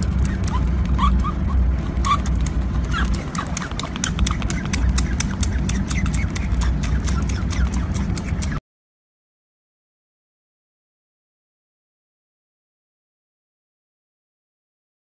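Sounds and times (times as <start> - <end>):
otter pup suckling clicks: 0.0 - 8.6.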